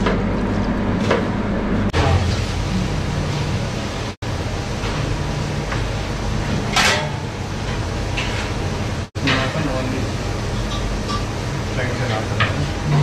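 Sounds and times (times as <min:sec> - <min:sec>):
kitchen ventilation hum: 0:00.0 - 0:13.0.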